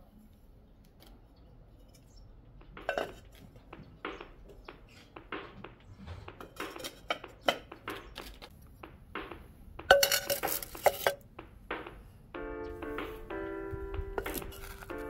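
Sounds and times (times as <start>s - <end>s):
clay pots clinking: 1.8s - 8.5s, 9.8s - 12.1s
music: 2.7s - 15.0s.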